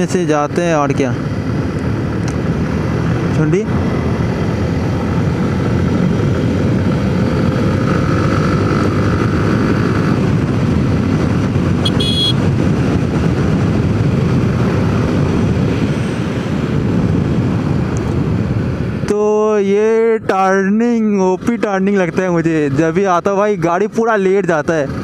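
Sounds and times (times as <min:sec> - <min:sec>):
motorcycle engine rumble: 0:00.0 - 0:19.1
high beep: 0:11.9 - 0:12.4.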